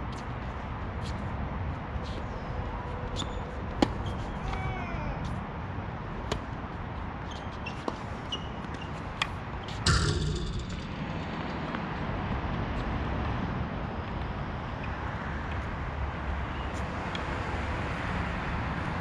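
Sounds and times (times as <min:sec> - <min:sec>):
sneaker squeaks on court: 0:07.2 - 0:09.0
ball bouncing: 0:09.9 - 0:11.2
steady low rumble: 0:09.9 - 0:12.2.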